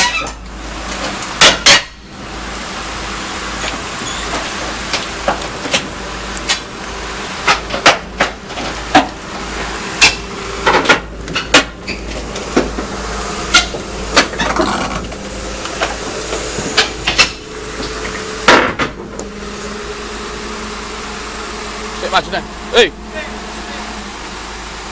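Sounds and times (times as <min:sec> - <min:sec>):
diesel engine humming: 0:00.0 - 0:24.9
crawler tracks clanking on steel: 0:03.5 - 0:19.7.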